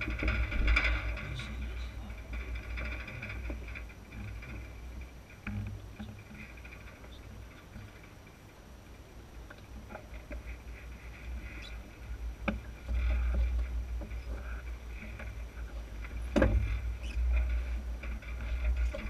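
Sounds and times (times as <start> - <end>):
sharp knocks: 16.2 - 17.3.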